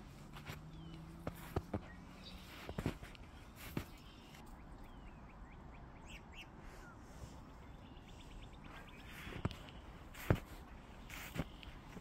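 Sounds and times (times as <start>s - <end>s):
footstep crunching in snow: 0.0s - 4.4s, 8.7s - 12.0s
small birds chirping: 0.0s - 12.0s.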